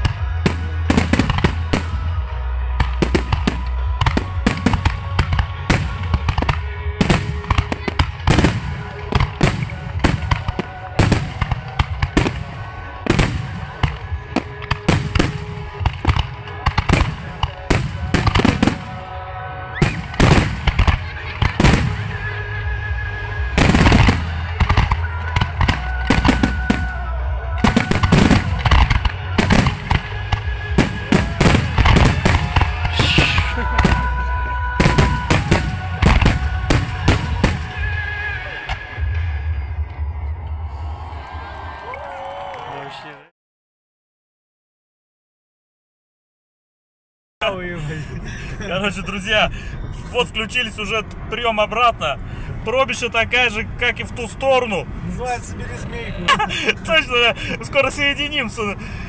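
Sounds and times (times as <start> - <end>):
fireworks bursting: 0.0 - 40.2.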